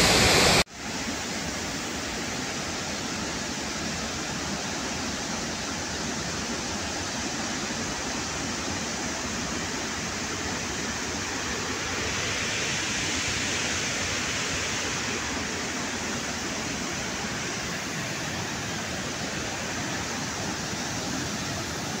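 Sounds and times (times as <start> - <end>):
water rushing through dam spillway: 0.0 - 22.0.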